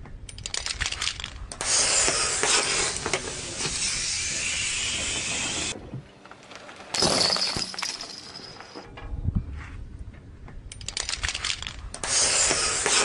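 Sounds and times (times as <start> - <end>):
gas hissing: 1.6 - 5.8, 12.0 - 13.0.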